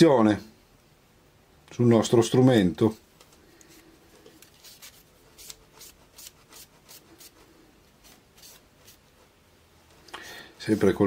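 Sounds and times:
soft brushing strokes: 0:03.0 - 0:11.0.

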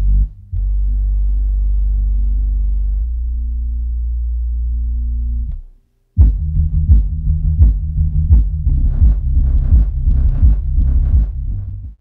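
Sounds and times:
deep held bass notes: 0:00.0 - 0:12.0
pulsing bass hits: 0:06.2 - 0:12.0.

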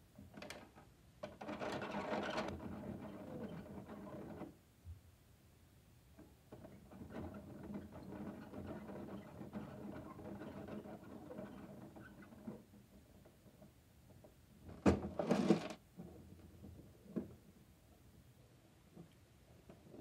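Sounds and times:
plastic clatter: 0:14.1 - 0:17.4.

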